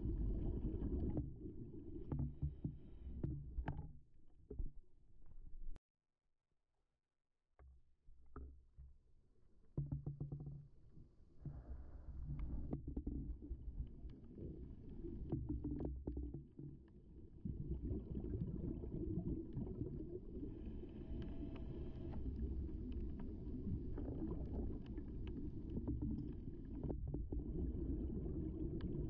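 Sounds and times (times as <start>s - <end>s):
muffled underwater rumble: 0.0s - 5.8s, 11.3s - 29.0s
small clicks and knocks: 2.1s - 4.8s, 9.7s - 10.7s.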